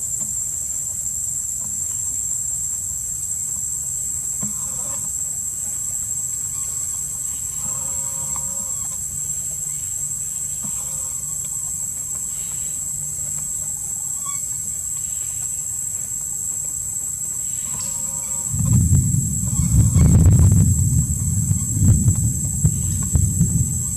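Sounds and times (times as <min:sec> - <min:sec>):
insects droning: 0:00.0 - 0:23.9
bird calling: 0:17.4 - 0:23.9.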